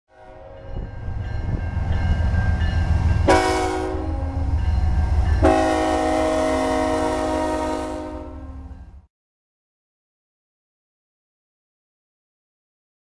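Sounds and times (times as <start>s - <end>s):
locomotive air horn blast: 0.1s - 0.9s, 3.2s - 9.0s
diesel locomotive engine rumble: 0.2s - 9.1s.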